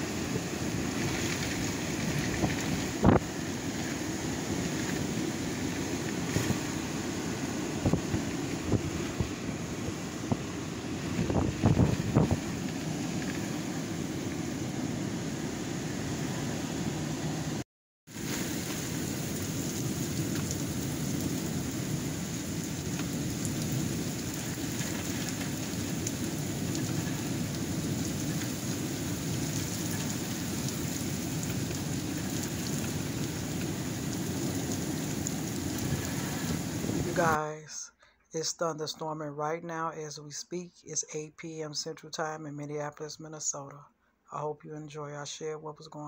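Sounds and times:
heavy rain: 0:00.0 - 0:15.3, 0:15.9 - 0:37.4
storm noise: 0:00.0 - 0:37.4.

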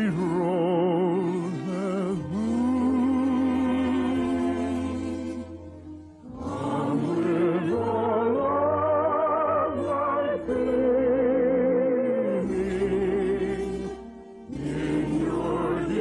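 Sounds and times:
orchestral operetta music: 0:00.0 - 0:16.0.

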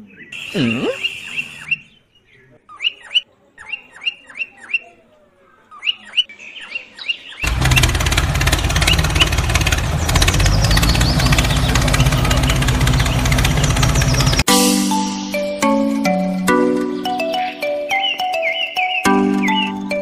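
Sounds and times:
small birds chirping: 0:00.0 - 0:14.5, 0:16.7 - 0:20.0
toy tractor engine rumble: 0:07.4 - 0:14.5.

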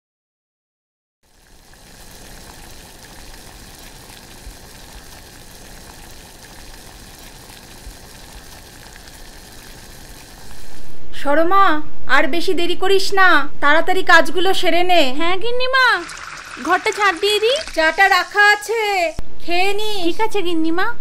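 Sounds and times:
steady hiss: 0:01.3 - 0:11.1, 0:15.8 - 0:20.1.

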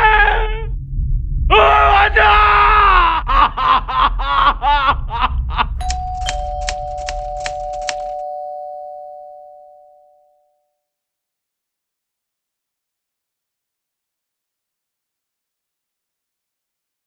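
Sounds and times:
low rumble: 0:00.0 - 0:07.2
man screaming: 0:01.5 - 0:03.4
typewriter key clacks: 0:05.8 - 0:08.2
two-note chime: 0:05.8 - 0:10.5.

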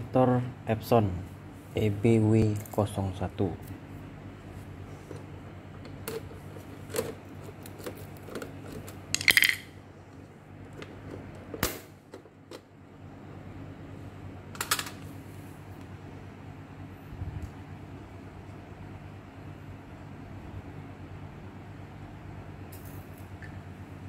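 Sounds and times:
screwdriver clattering on tile floor: 0:09.2 - 0:09.7.

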